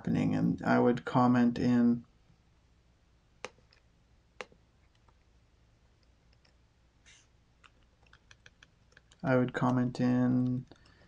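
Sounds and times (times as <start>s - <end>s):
computer mouse clicks: 6.0s - 11.0s.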